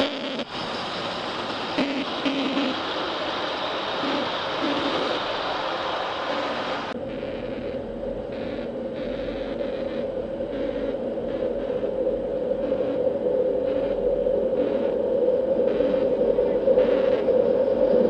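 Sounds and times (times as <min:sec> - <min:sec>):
model train humming on track: 0:00.0 - 0:13.0
faint hissy steam pulses: 0:00.0 - 0:18.0.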